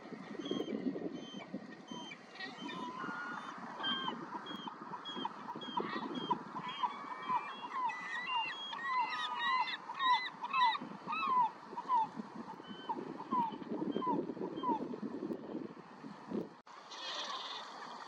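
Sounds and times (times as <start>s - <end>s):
gulls calling: 0.0s - 15.0s.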